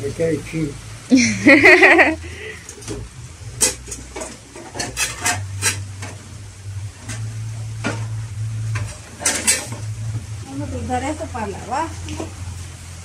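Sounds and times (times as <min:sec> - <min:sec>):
dishes clinking in dish rack: 0:08.8 - 0:09.9.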